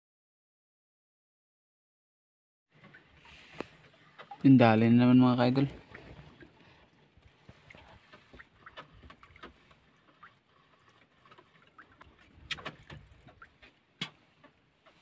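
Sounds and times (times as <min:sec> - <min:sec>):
fishing line clicks and knocks: 0:11.3 - 0:15.0.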